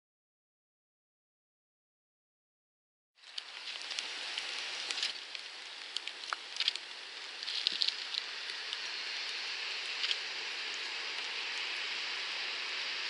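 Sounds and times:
raindrops ticking: 3.2s - 11.8s
steady rain falling: 3.2s - 13.0s.

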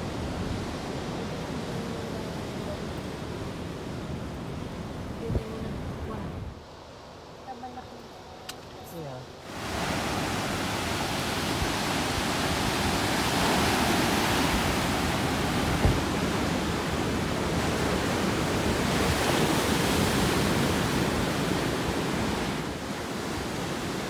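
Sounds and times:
surf breaking on shore: 9.4s - 24.0s.

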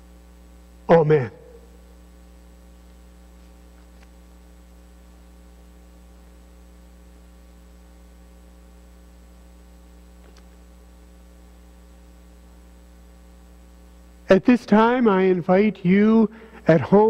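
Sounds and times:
electrical mains hum: 0.0s - 17.0s
faint click: 10.2s - 10.6s.

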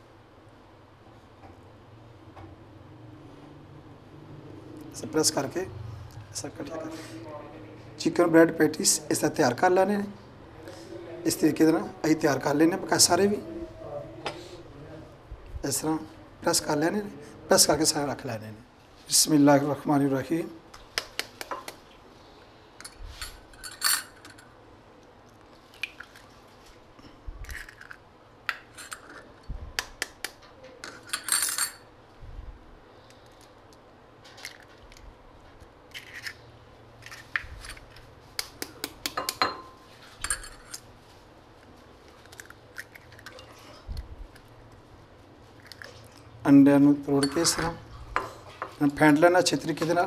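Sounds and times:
eggshells tapped with a fork: 21.0s - 21.8s, 38.4s - 39.6s
eggs cracking: 25.2s - 26.4s, 27.4s - 31.0s, 42.0s - 44.8s, 45.5s - 46.3s.

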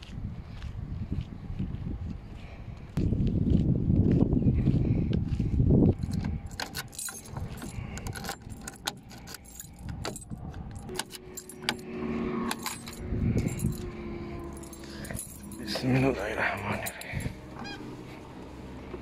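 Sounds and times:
keys jangling in a lock: 6.0s - 17.8s
low rumble: 9.4s - 19.0s.

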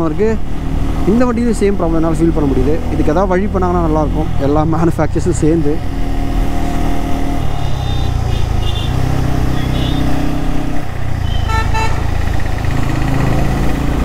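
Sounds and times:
motorcycle engine running: 0.1s - 14.0s
vehicle horn toots: 7.5s - 10.2s, 11.2s - 12.1s.

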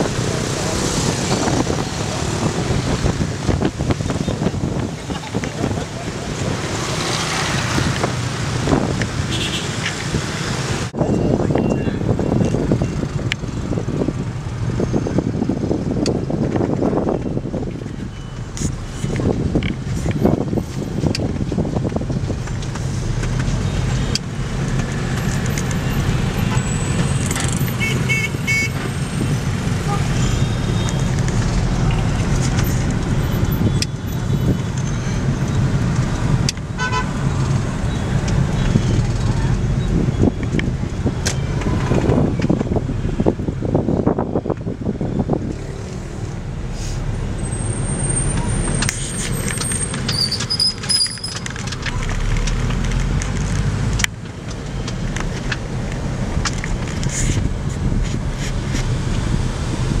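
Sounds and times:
scooters and cars passing: 0.0s - 60.0s
street traffic rumble: 0.0s - 60.0s.

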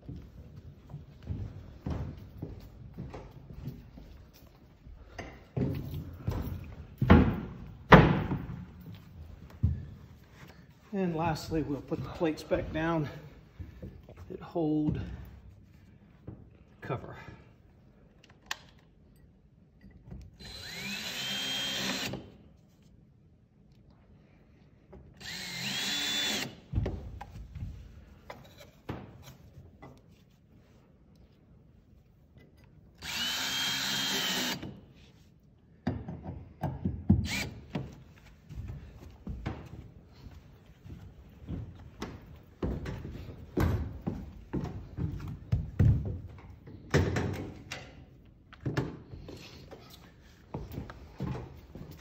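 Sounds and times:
footsteps on metal decking: 0.0s - 15.4s, 37.8s - 46.8s, 48.6s - 52.0s
cordless drill whining: 20.4s - 22.3s, 25.2s - 26.6s, 33.0s - 34.8s, 37.2s - 37.6s.

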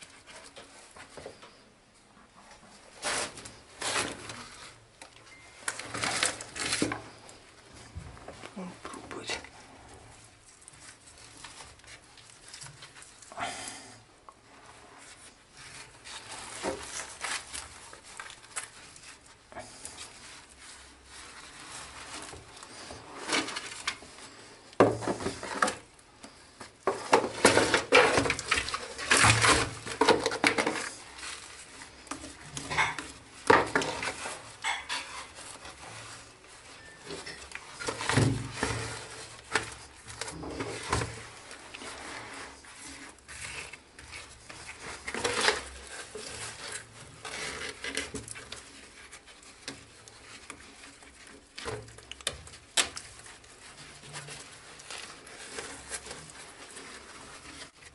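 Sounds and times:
hands rubbing wet mortar: 14.4s - 57.9s.

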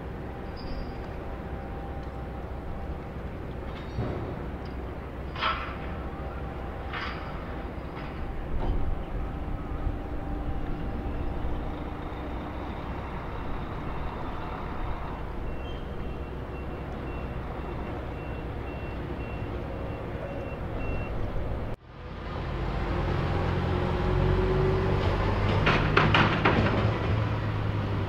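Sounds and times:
reversing alarm beeping: 0.0s - 21.5s
low engine rumble: 0.0s - 28.0s.

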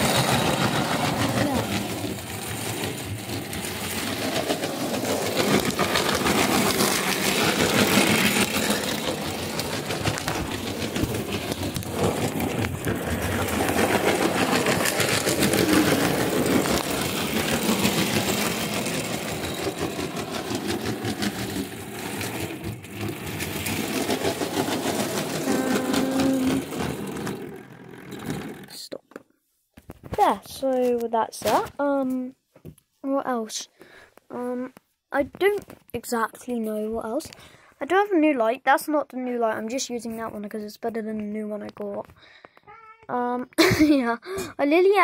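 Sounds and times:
model train motor hum: 0.0s - 28.8s
wheels rattling on rail: 0.0s - 28.8s.

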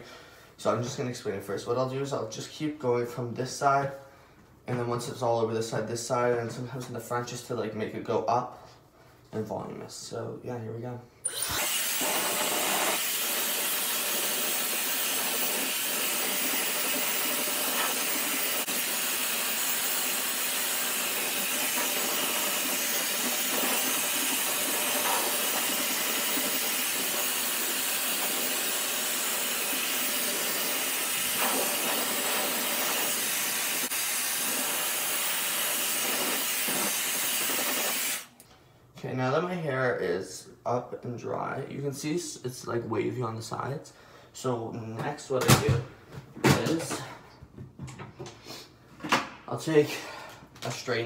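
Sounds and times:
hair dryer running: 11.3s - 38.3s.

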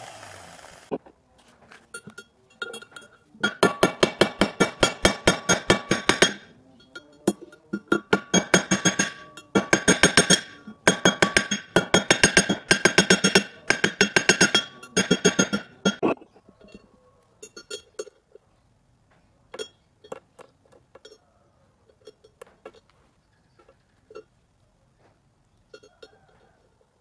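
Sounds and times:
clinks of small metal parts: 1.7s - 3.8s, 14.2s - 18.5s, 19.5s - 24.3s, 25.7s - 26.8s.

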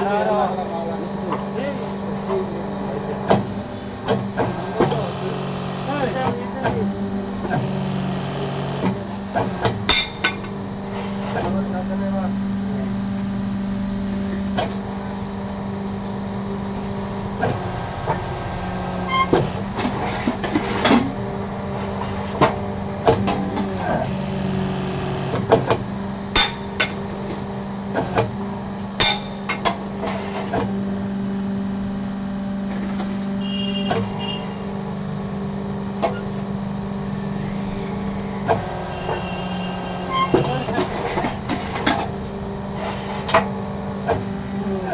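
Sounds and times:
machine motor humming: 0.0s - 44.9s.

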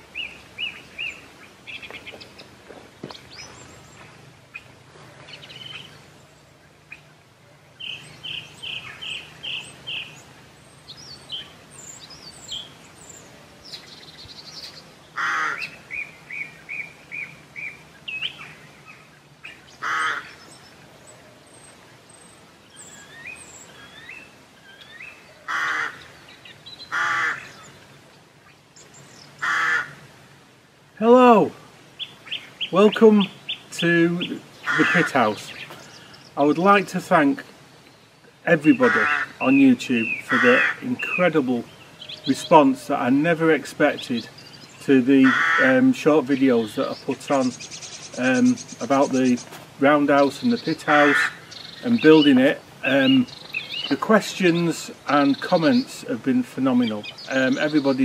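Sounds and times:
songbirds twittering: 0.0s - 58.0s
crow cawing: 15.2s - 15.8s, 19.8s - 20.4s, 25.4s - 26.2s, 26.9s - 27.6s, 29.4s - 30.0s, 34.6s - 36.1s, 38.8s - 39.4s, 40.3s - 40.9s, 45.2s - 45.7s, 50.9s - 51.6s.

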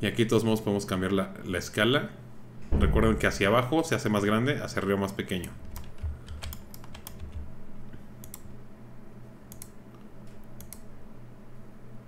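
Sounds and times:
faint low hum: 0.0s - 12.0s
mouse and keyboard clicks: 9.5s - 10.9s.

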